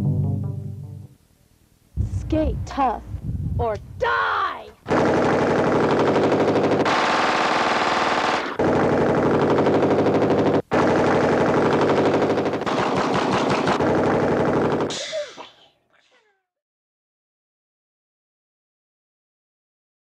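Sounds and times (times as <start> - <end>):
automatic gunfire: 4.9 - 15.1.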